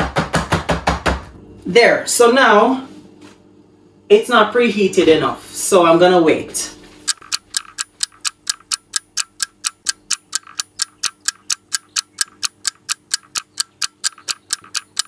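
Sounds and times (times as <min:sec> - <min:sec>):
clock ticking: 0:07.1 - 0:15.0.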